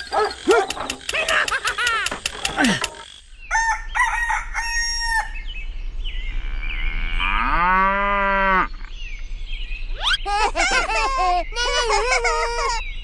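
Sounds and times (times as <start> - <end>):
rooster crowing: 3.5 - 5.4.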